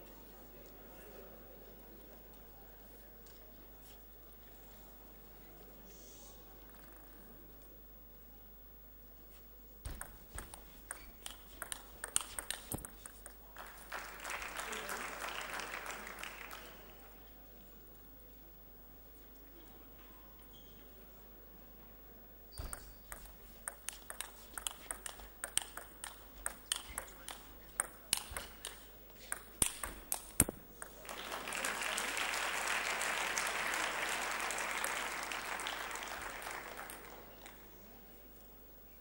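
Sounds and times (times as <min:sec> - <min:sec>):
table tennis ball clicking: 0:09.9 - 0:13.4, 0:22.6 - 0:31.0
crowd applauding: 0:13.5 - 0:17.1, 0:30.8 - 0:37.6.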